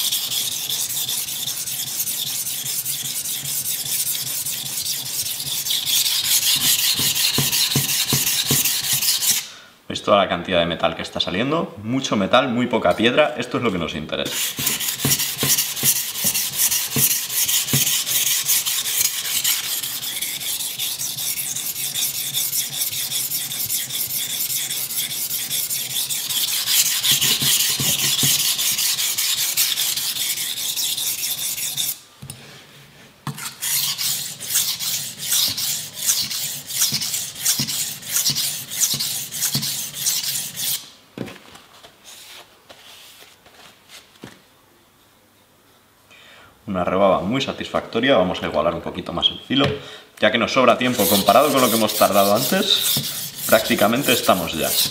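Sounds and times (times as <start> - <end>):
knife rasping on whetstone: 0.0 - 9.5, 14.3 - 32.0, 33.3 - 40.9, 50.9 - 54.9.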